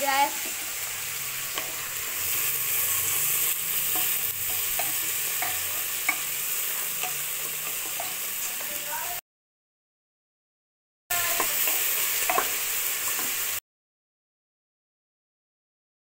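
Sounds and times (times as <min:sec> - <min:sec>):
onions sizzling in hot oil: 0:00.0 - 0:09.2, 0:11.1 - 0:13.6.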